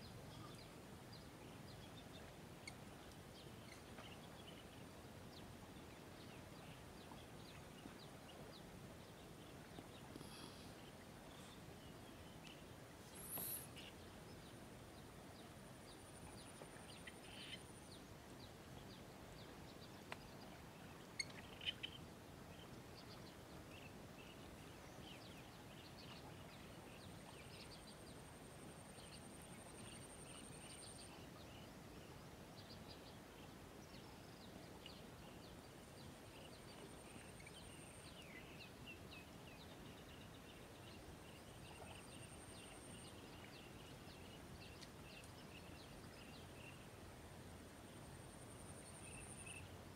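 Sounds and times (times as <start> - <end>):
bird chirps: 12.4 - 14.0.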